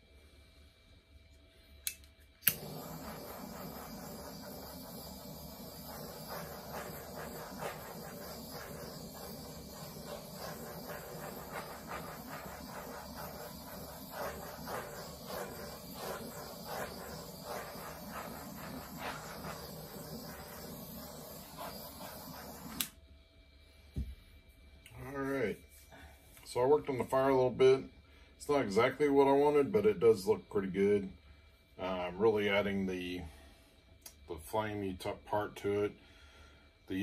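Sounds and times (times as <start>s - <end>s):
butane torch clicking on: 1.8s - 23.0s
torch flame hissing: 2.4s - 23.0s.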